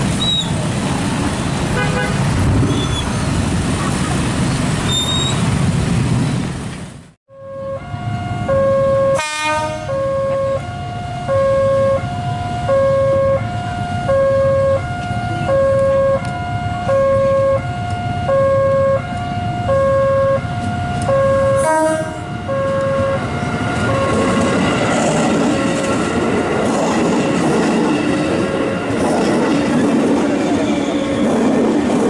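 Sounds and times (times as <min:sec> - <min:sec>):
two-tone crossing alarm: 0:07.3 - 0:25.0.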